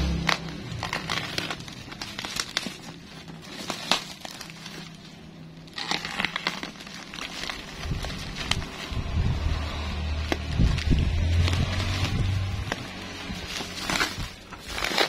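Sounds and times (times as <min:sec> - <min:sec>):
plastic wrapping crinkling: 0:00.0 - 0:15.0
box cutter slitting tape: 0:13.5 - 0:15.0.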